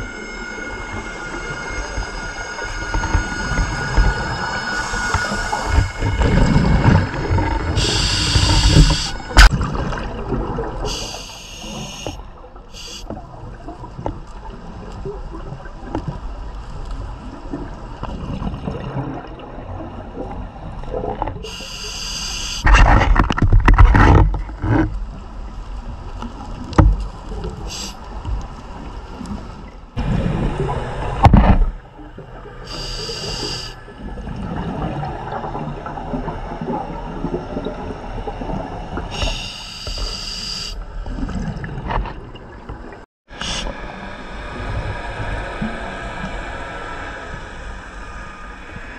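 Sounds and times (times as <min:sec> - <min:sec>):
rush of exhaled bubbles: 0:03.4 - 0:12.0, 0:34.0 - 0:39.3
regulator hissing inhalations: 0:07.8 - 0:09.2, 0:10.9 - 0:12.2, 0:12.8 - 0:13.1, 0:21.5 - 0:22.7, 0:27.7 - 0:28.0, 0:32.7 - 0:33.8, 0:39.1 - 0:40.8, 0:43.4 - 0:43.7.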